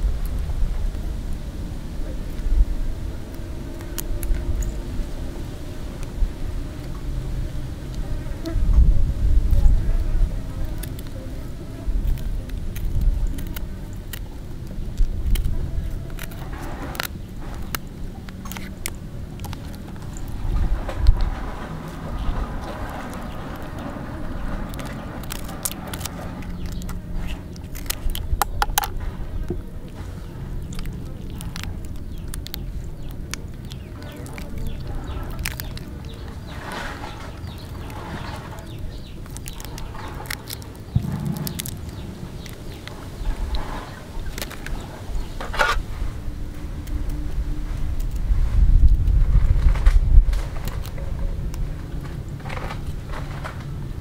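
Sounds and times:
low rumble: 0:00.0 - 0:54.0
scissors snipping shrimp shell: 0:10.4 - 0:20.4, 0:21.0 - 0:49.1.

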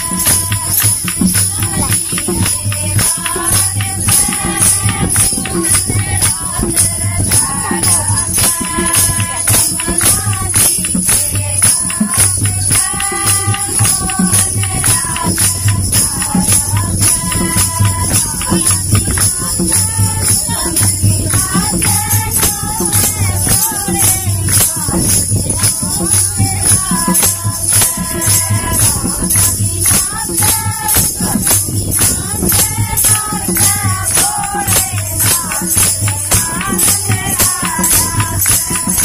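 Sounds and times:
low drum pulse: 0:00.0 - 0:38.9
jingling hand percussion: 0:00.0 - 0:39.0
women singing: 0:00.0 - 0:39.0.

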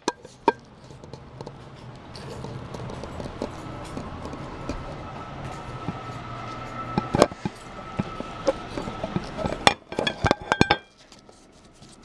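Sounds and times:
plate clinking on table: 0:09.4 - 0:10.9.

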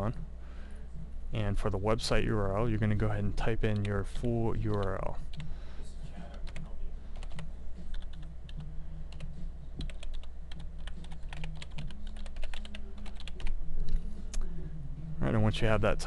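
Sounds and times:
steady low hum: 0:00.0 - 0:16.0
typing on computer keyboard: 0:07.2 - 0:14.0.

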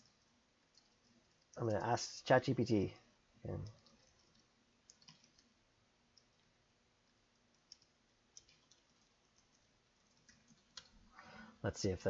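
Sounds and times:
computer keyboard keystrokes: 0:00.0 - 0:01.6, 0:03.6 - 0:05.5, 0:07.4 - 0:11.0.

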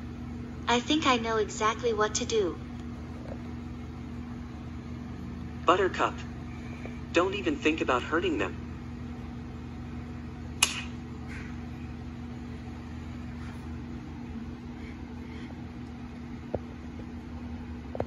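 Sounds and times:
low room hum: 0:00.0 - 0:18.0
sharp click: 0:10.6 - 0:11.0.

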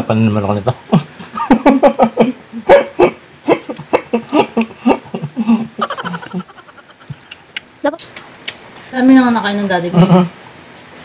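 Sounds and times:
people laughing: 0:00.9 - 0:07.4.

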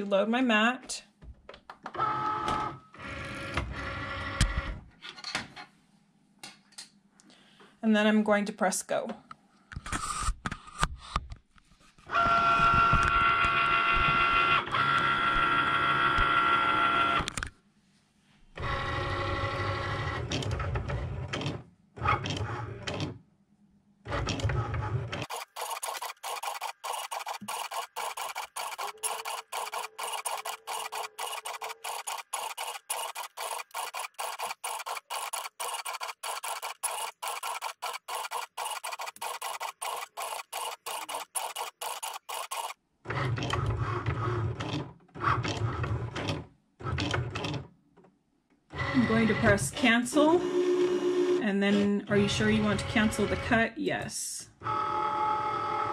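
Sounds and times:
cutting machine motors whining: 0:25.3 - 0:42.8
rapid even ticking of pen: 0:25.3 - 0:42.8.

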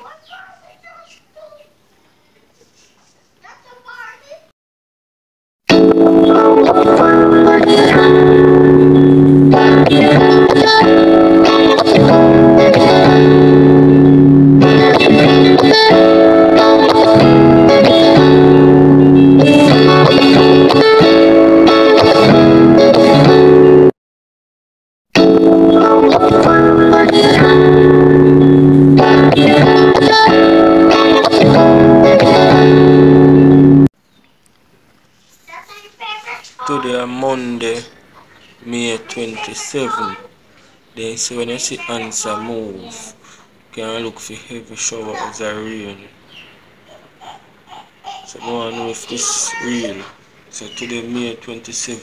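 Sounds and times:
guitar chords music: 0:05.7 - 0:24.0, 0:25.2 - 0:33.9.

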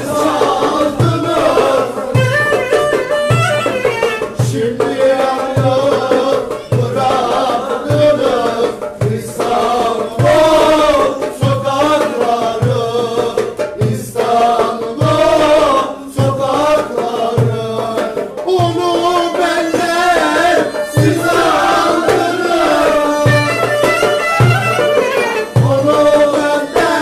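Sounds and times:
goblet drum beat: 0:00.0 - 0:27.0
violin melody: 0:02.2 - 0:04.3, 0:23.3 - 0:25.6.

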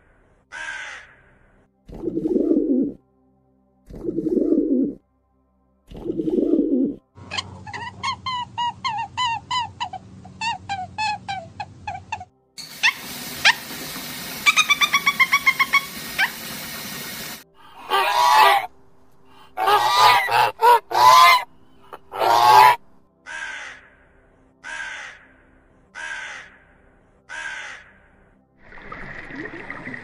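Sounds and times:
raven cawing: 0:00.5 - 0:01.5, 0:17.6 - 0:18.7, 0:19.3 - 0:28.4
goose honking: 0:17.6 - 0:18.7, 0:19.4 - 0:23.6
budgerigar chirping: 0:19.6 - 0:22.8.

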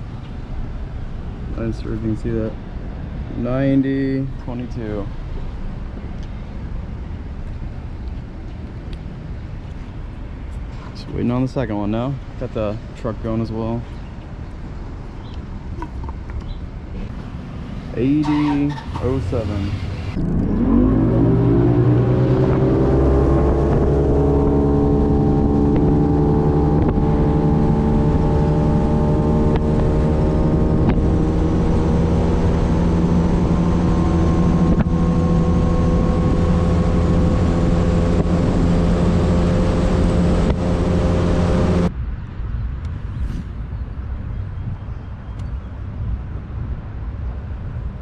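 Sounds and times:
outboard motor accelerating: 0:20.1 - 0:41.9.

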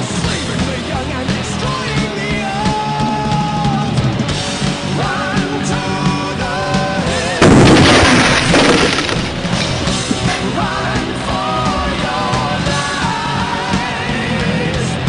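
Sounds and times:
rock music with singer and drums: 0:00.0 - 0:15.0
loud gas explosion: 0:07.4 - 0:10.5.

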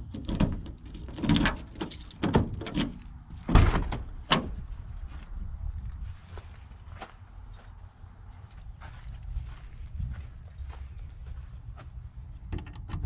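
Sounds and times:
key turning in door lock: 0:00.0 - 0:03.2
van door unlatching and opening: 0:00.0 - 0:04.6.

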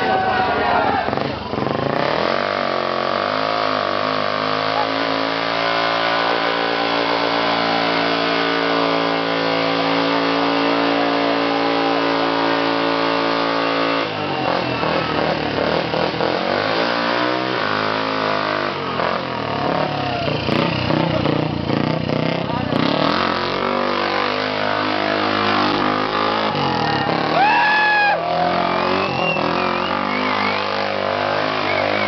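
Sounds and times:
motorcycle engine revving: 0:00.8 - 0:32.0.

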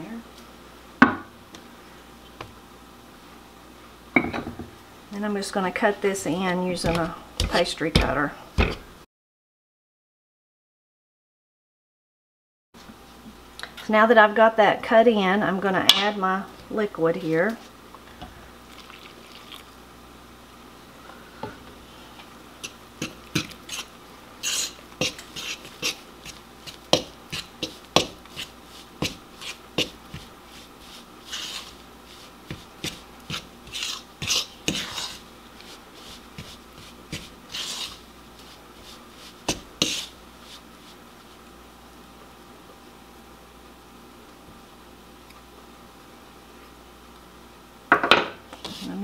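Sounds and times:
fork scraping and clicking in bowl: 0:22.6 - 0:30.0.

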